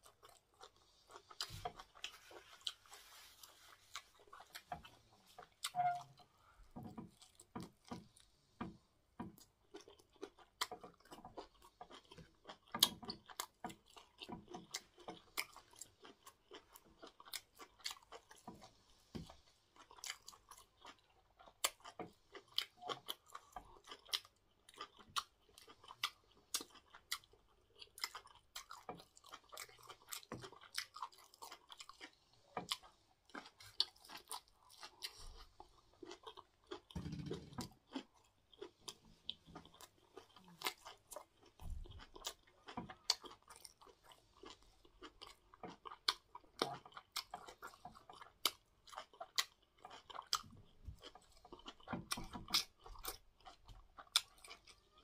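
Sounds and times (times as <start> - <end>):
person chewing food: 0.0 - 55.0.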